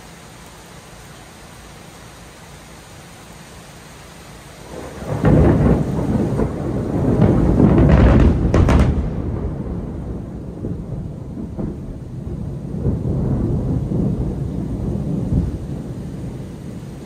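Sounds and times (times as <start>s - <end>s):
steady hiss: 0.0s - 17.0s
thunderclap and rumble: 4.6s - 17.0s
sharp crackles: 7.2s - 9.4s.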